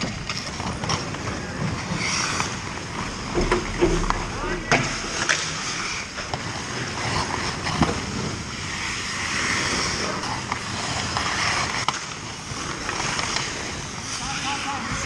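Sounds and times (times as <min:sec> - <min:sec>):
hockey sticks and puck clicking: 0:00.0 - 0:04.2, 0:05.1 - 0:15.0
skates scraping on ice: 0:00.0 - 0:15.0.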